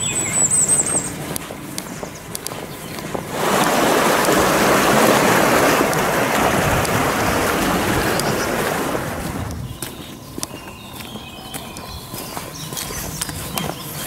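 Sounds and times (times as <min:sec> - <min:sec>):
faint footsteps: 0:00.0 - 0:14.0
flowing water rushing: 0:03.0 - 0:09.7.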